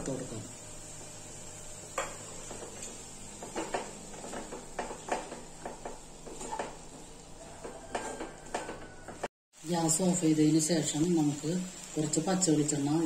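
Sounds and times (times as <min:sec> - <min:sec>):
wooden spatula scraping a pan: 0:02.0 - 0:09.3.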